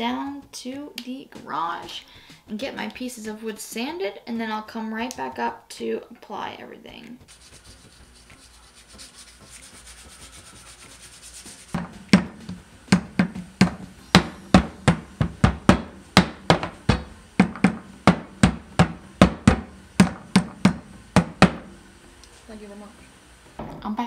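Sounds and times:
sanding wood: 0:07.3 - 0:12.3
hammer striking wood: 0:11.8 - 0:21.7.

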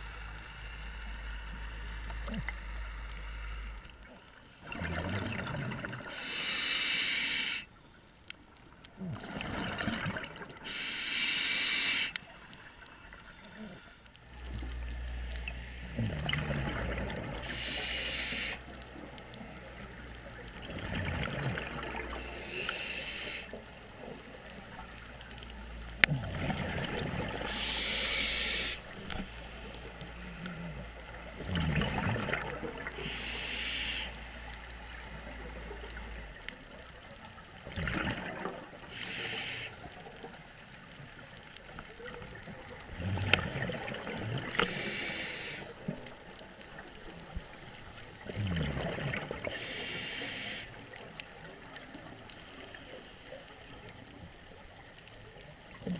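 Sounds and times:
gurgling exhaled bubbles: 0:04.6 - 0:06.2, 0:08.9 - 0:10.8, 0:14.4 - 0:18.7, 0:19.7 - 0:24.5, 0:26.0 - 0:34.0, 0:37.3 - 0:40.4, 0:41.6 - 0:52.8
regulator hissing inhale: 0:06.0 - 0:07.8, 0:10.6 - 0:14.1, 0:17.4 - 0:18.8, 0:22.0 - 0:23.7, 0:27.3 - 0:30.7, 0:32.9 - 0:35.4, 0:38.8 - 0:40.0, 0:44.5 - 0:46.0, 0:49.4 - 0:51.2.

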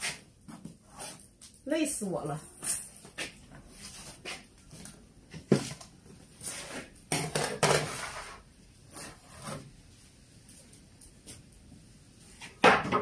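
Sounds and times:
kitchenware clattering on wooden table: 0:07.1 - 0:08.2.

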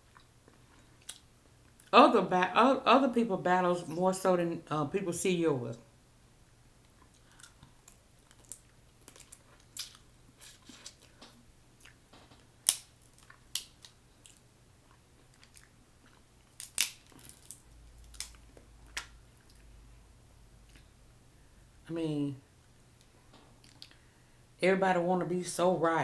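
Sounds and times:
crab shells cracking: 0:07.2 - 0:10.1, 0:12.4 - 0:14.4, 0:16.5 - 0:19.2.

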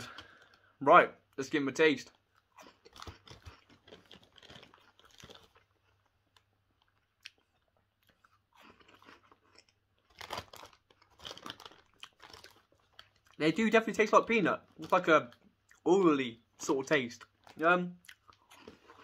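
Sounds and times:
crunching and chewing corn puffs: 0:00.0 - 0:15.9, 0:16.6 - 0:19.0.

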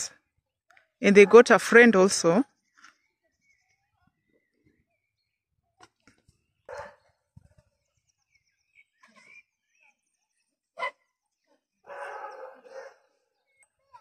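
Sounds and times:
birds chirping faintly: 0:00.1 - 0:14.0
dog barking: 0:06.7 - 0:07.1, 0:11.9 - 0:13.1.

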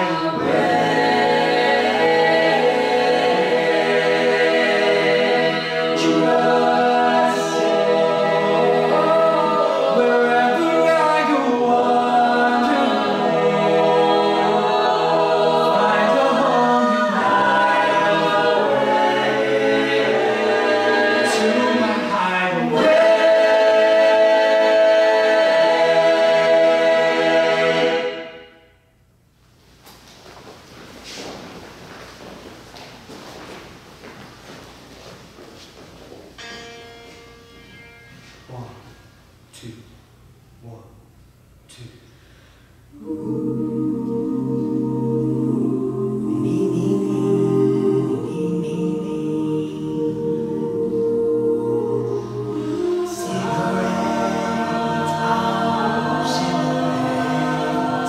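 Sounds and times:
a cappella group singing in harmony: 0:00.0 - 0:28.8, 0:42.1 - 0:58.0.

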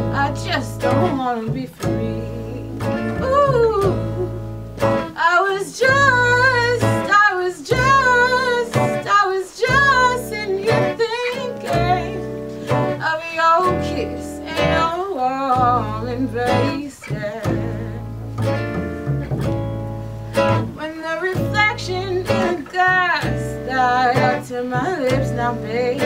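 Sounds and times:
upright double bass: 0:00.0 - 0:05.2, 0:15.6 - 0:20.8
acoustic guitar: 0:00.0 - 0:26.0.

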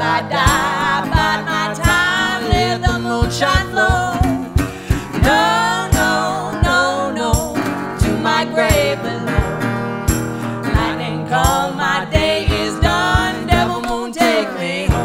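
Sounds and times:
woman and man singing: 0:00.0 - 0:09.5, 0:10.7 - 0:15.0
acoustic guitar strumming: 0:00.0 - 0:15.0.

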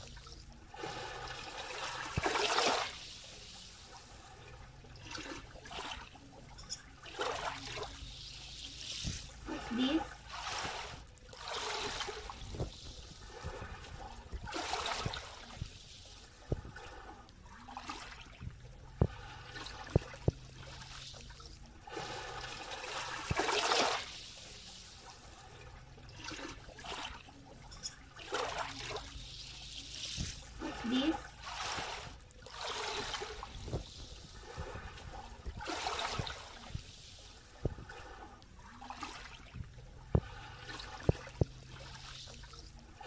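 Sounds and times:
ripples lapping onto sand: 0:00.0 - 0:04.4, 0:07.1 - 0:18.4.

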